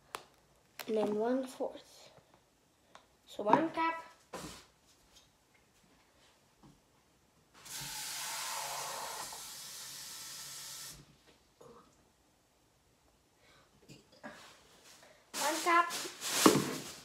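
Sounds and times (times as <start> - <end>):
tap running water: 7.6 - 11.1.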